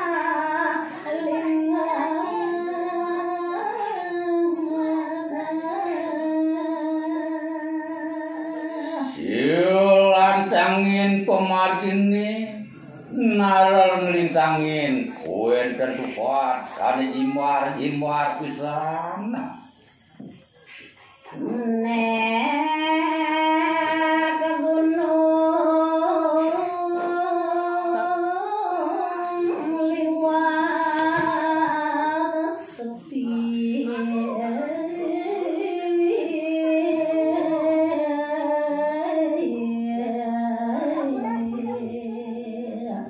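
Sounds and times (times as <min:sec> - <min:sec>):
woman singing unaccompanied: 0:00.0 - 0:12.2, 0:21.2 - 0:43.0.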